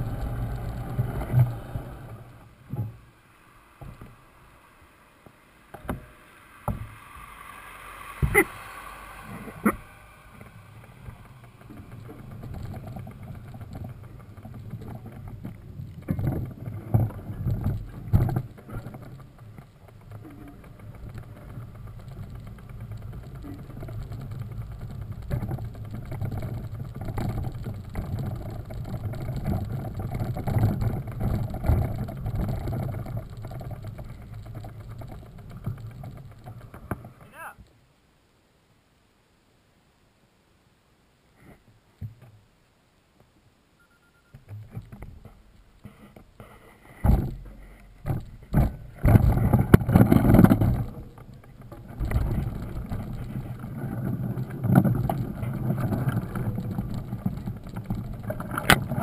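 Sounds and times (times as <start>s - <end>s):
bike tyres rumbling on wet mud: 0.0s - 37.5s, 44.6s - 59.0s
bike knocking over bumps: 9.4s - 37.2s, 44.6s - 59.0s.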